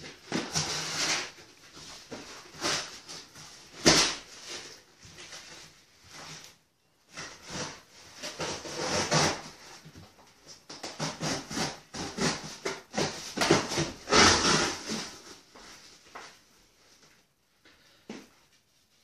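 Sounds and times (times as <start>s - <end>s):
cardboard scraping and tearing: 0.0s - 6.4s, 7.1s - 9.9s, 10.8s - 15.5s.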